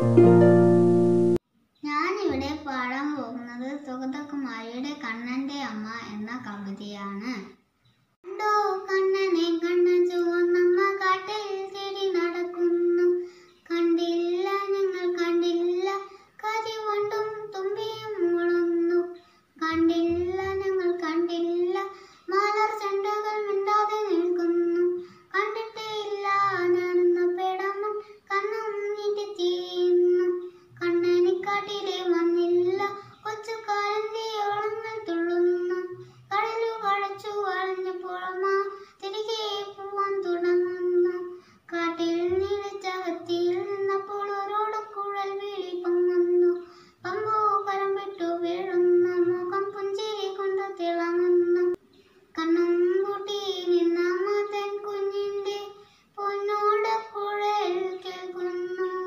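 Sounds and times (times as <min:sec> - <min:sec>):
boy singing: 0:01.8 - 0:07.5, 0:08.3 - 0:59.0.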